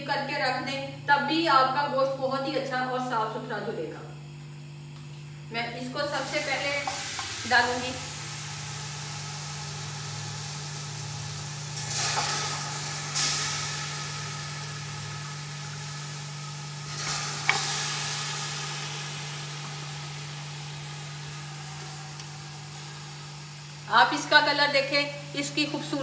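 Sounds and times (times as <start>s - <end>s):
meat sizzling in a pot: 6.2s - 26.0s.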